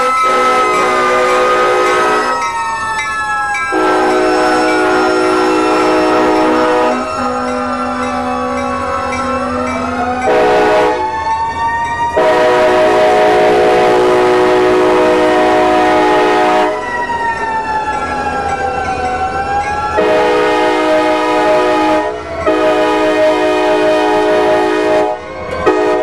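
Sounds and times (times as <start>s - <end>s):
locomotive air horn blasts: 0.0s - 2.4s, 3.7s - 8.6s, 10.2s - 11.1s, 12.2s - 16.9s, 20.0s - 26.0s
mechanical siren wailing: 0.0s - 26.0s.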